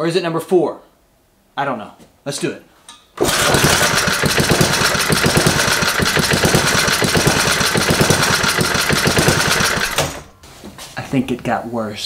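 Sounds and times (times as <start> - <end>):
small engine running: 3.2 - 10.3.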